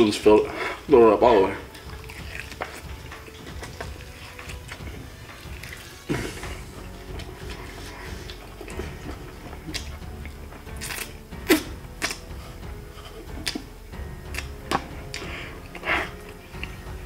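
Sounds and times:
person eating with wet smacks: 1.6 - 17.0.

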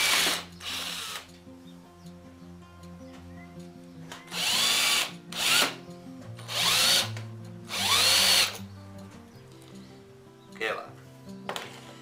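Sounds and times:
power drill motor whine: 0.0 - 1.3, 4.2 - 5.8, 6.5 - 7.1, 7.7 - 8.6
faint background music: 0.0 - 12.0.

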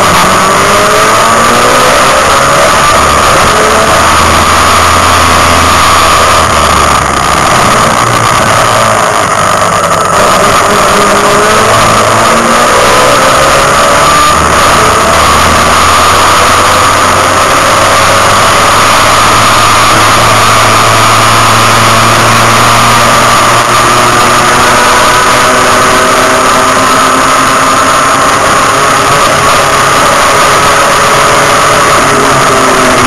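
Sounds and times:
race car engine at speed: 0.0 - 33.0.

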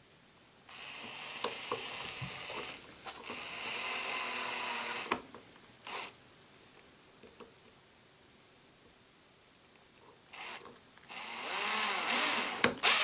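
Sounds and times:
cordless drill whining: 0.7 - 5.2, 5.9 - 6.2, 10.3 - 13.0.

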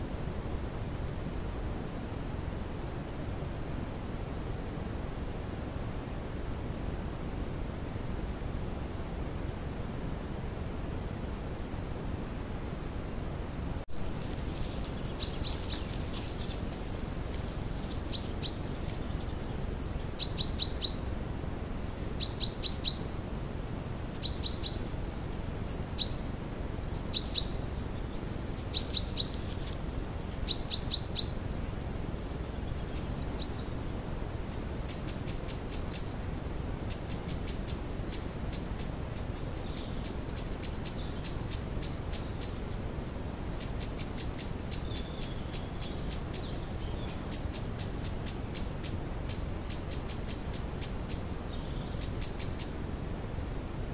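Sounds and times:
songbird calling: 13.9 - 21.2, 21.8 - 36.3, 36.9 - 52.8.

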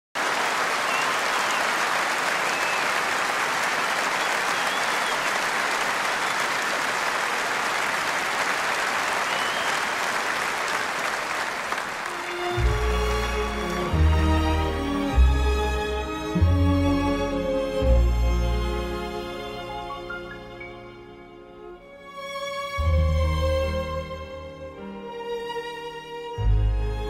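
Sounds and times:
audience applauding: 0.1 - 15.3
orchestra playing: 12.0 - 27.0.

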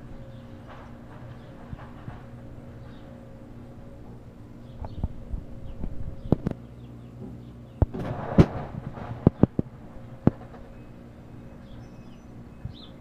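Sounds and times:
excavator engine hum: 0.0 - 13.0
sharp knocks and cracks: 7.2 - 10.8
breaking timber and debris crashing: 7.9 - 10.9.

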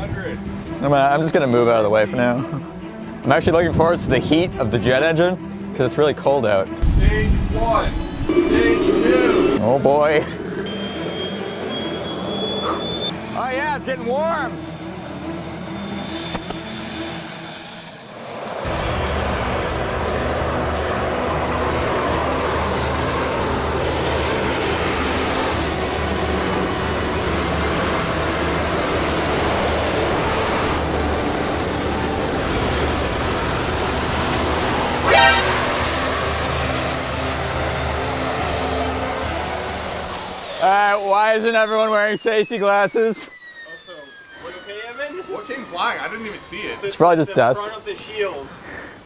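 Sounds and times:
exhaust rush: 6.8 - 16.2, 18.6 - 42.2
jet turbine whine: 6.8 - 49.0.

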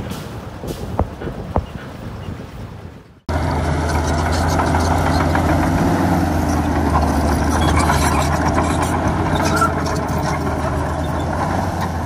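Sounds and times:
heavy diesel engine running: 3.3 - 12.0.

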